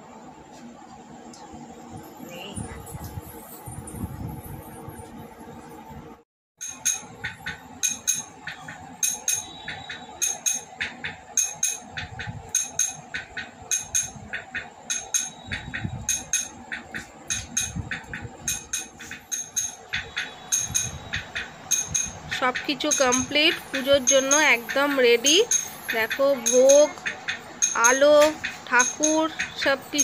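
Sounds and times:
metallic clinking strikes: 6.6 - 30.0.

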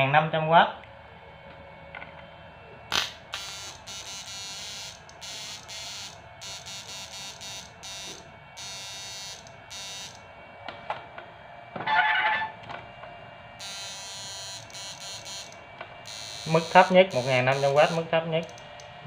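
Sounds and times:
inverter buzzing in bursts: 2.9 - 10.6, 13.4 - 19.0.

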